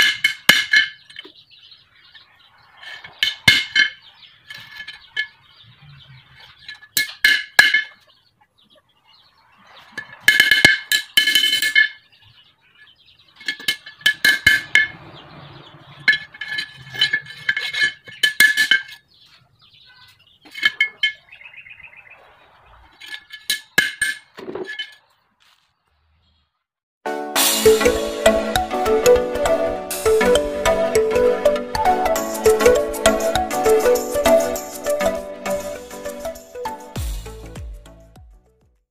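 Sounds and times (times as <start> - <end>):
hammer striking metal: 14.1 - 16.7.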